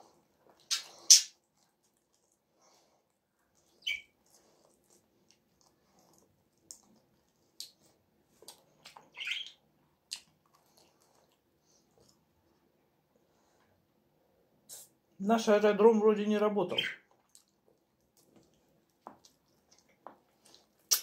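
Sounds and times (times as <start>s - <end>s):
wet lip smacks and sucking: 0.5s - 2.4s, 10.1s - 11.4s, 17.1s - 21.0s.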